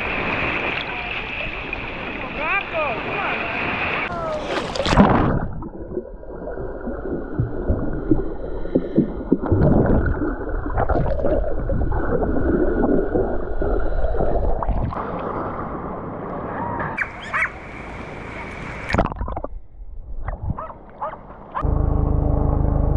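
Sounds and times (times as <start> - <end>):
water splashing: 0.0 - 15.9, 17.0 - 19.6
underwater gurgling and bubbles: 3.8 - 16.3.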